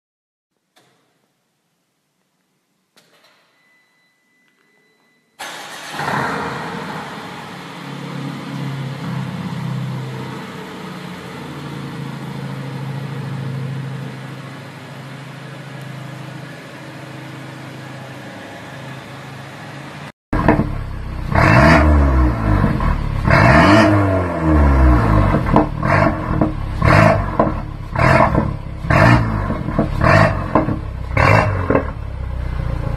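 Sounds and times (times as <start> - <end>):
car engine idling: 5.4 - 23.9, 24.5 - 32.9
car engine revving: 5.4 - 32.9.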